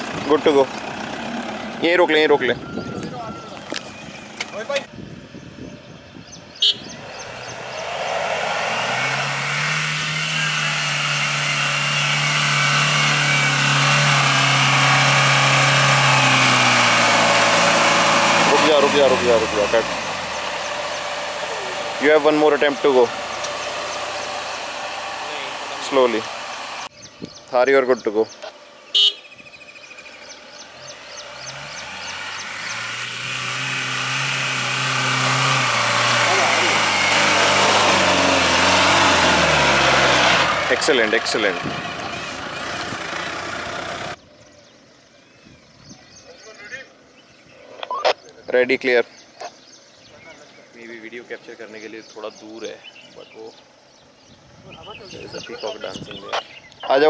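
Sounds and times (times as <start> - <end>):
tyres churning through dirt: 0.0 - 5.0, 6.6 - 29.1, 29.7 - 44.2
diesel engine under load: 0.0 - 44.3.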